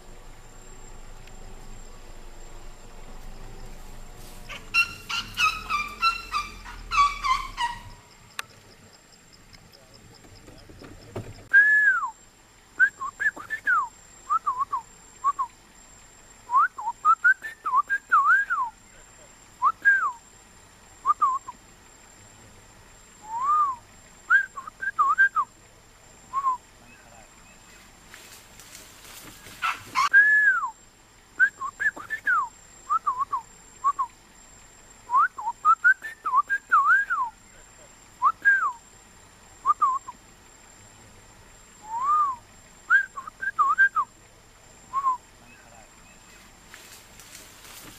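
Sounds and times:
whistled notes: 11.5s - 12.2s, 30.1s - 30.8s, 38.2s - 38.8s, 41.8s - 44.1s.

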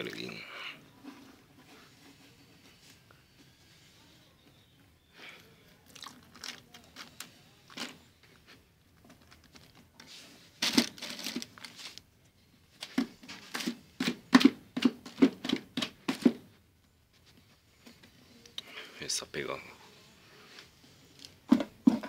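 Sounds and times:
plastic bag crinkling: 5.8s - 8.1s, 8.9s - 12.1s.

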